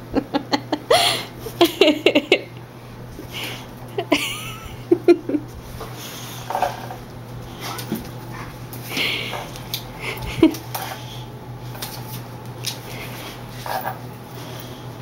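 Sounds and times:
dogs play-fighting: 5.4s - 15.0s.

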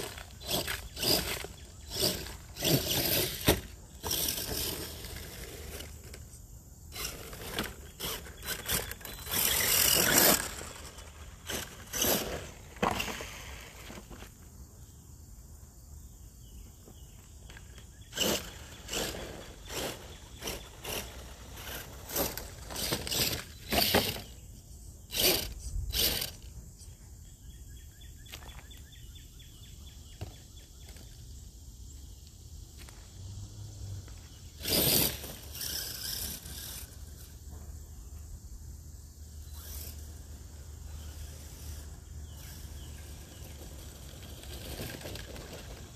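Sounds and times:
toy truck scraping and crunching: 0.0s - 14.4s, 17.4s - 26.6s, 34.0s - 37.7s, 39.4s - 45.9s
electric motor whine: 6.9s - 13.0s.

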